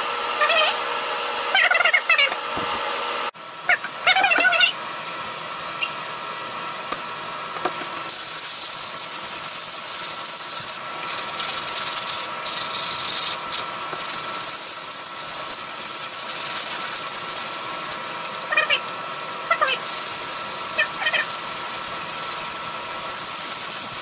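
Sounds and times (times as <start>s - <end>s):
sandpaper rubbing back and forth: 8.1s - 18.0s, 19.7s - 24.0s.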